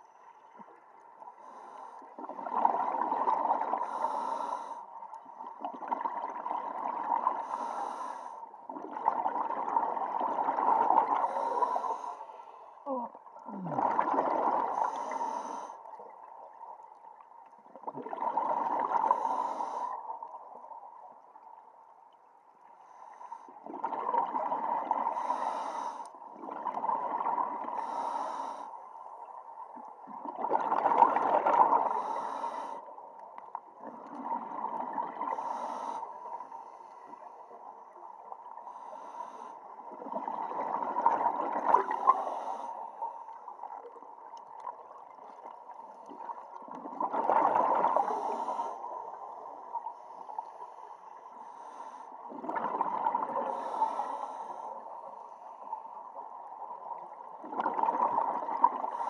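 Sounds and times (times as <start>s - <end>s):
diver breathing through regulator: 3.7s - 4.9s, 7.4s - 8.4s, 11.2s - 12.8s, 14.7s - 15.9s, 19.0s - 20.0s, 25.1s - 26.1s, 27.8s - 28.8s, 31.8s - 32.9s, 35.2s - 37.3s, 38.6s - 39.8s, 41.8s - 43.4s, 47.8s - 49.2s, 49.9s - 52.4s, 53.3s - 55.6s
bubbles underwater: 12.9s - 14.8s, 17.8s - 19.1s, 46.1s - 48.2s, 52.3s - 53.5s, 57.4s - 58.9s.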